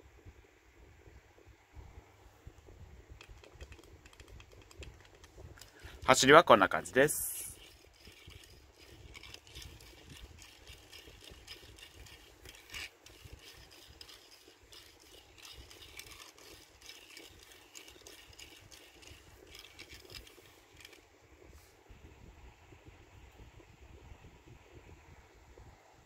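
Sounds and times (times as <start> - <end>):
toy car rattling and clicking: 3.2 - 6.2, 7.0 - 21.0.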